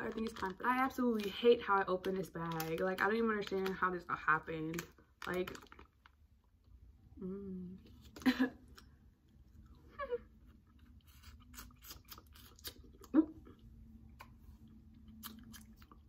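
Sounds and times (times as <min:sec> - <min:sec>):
mouth chewing candy: 0:07.8 - 0:16.0.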